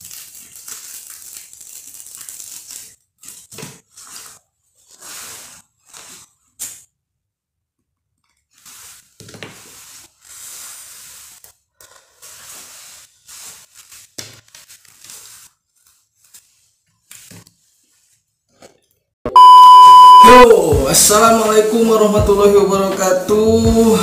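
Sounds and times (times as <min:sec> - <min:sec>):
electronic beep tone: 0:19.3 - 0:20.6.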